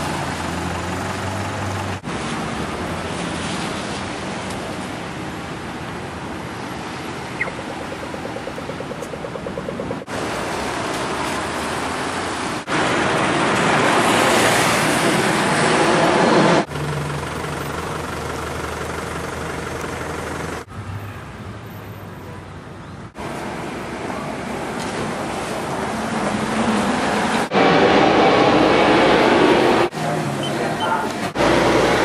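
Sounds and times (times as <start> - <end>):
tyres hissing on wet road: 0.0 - 7.3, 10.1 - 16.8, 23.2 - 32.0.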